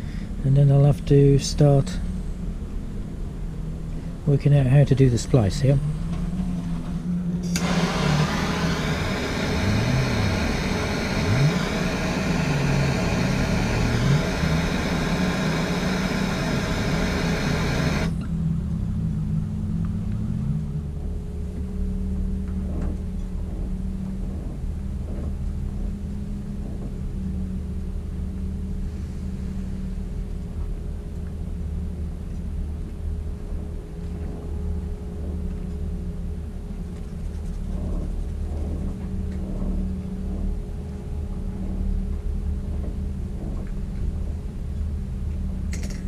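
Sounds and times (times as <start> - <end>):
low mechanical hum: 0.0 - 46.0
blowtorch hissing: 7.5 - 18.2.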